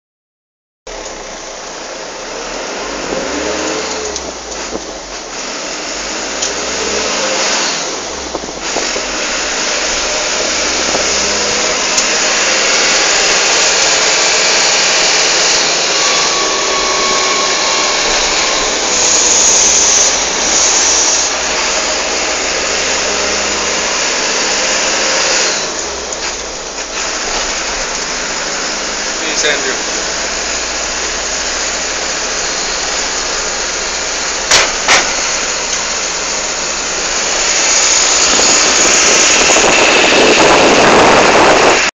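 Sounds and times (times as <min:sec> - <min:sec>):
vehicle engine running: 0:00.9 - 0:41.9
wind and road noise: 0:00.9 - 0:41.9.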